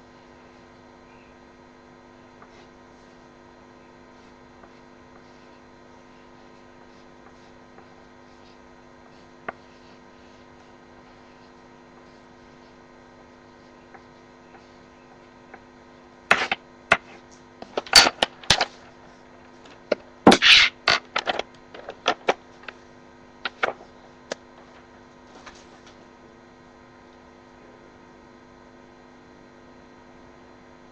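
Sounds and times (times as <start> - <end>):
electrical hum: 0.0 - 30.9
sharp clicks and knocks: 16.3 - 18.8, 23.4 - 24.4.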